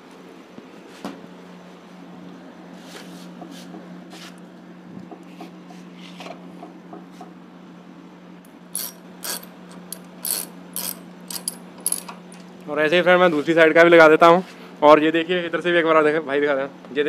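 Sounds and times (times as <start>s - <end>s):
steady low hum: 0.0s - 16.9s
socket ratchet clicking: 8.5s - 12.3s.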